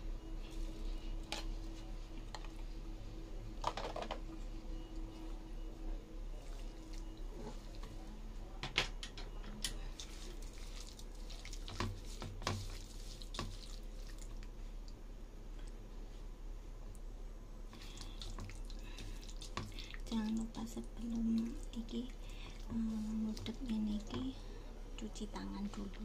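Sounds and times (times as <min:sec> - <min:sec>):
hand mashing pumpkin: 0:10.0 - 0:13.8.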